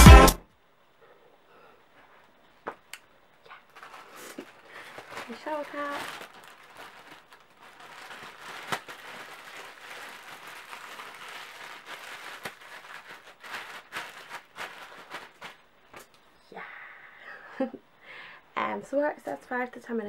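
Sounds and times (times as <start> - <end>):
plastic shower cap crinkling: 3.5 - 16.1.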